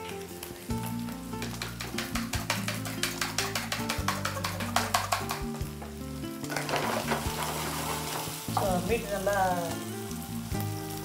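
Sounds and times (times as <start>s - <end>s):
food sizzling in pan: 0.0s - 11.0s
fork beating eggs in bowl: 1.6s - 5.4s.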